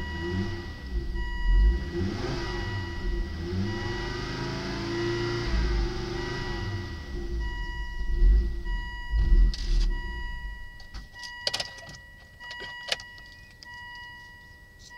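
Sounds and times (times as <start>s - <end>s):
car engine revving down: 0.0s - 10.8s
steady high tone: 0.0s - 14.9s.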